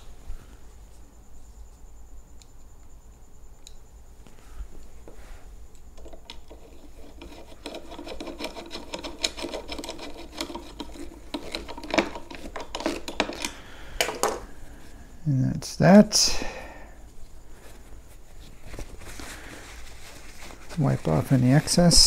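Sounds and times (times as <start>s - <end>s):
screw squeaking: 6.0s - 13.5s
screwdriver scraping clicks: 6.0s - 14.2s.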